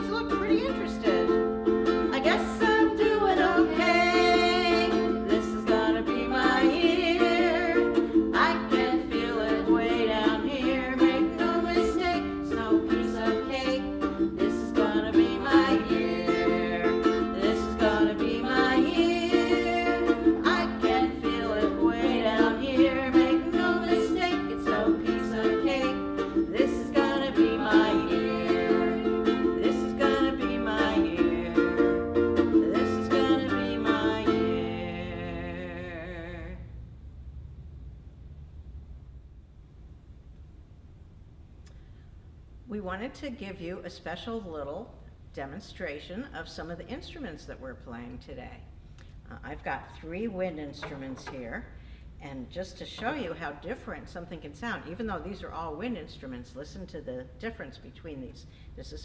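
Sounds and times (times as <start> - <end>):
strummed ukulele: 0.0 - 36.6
women singing: 0.0 - 36.6.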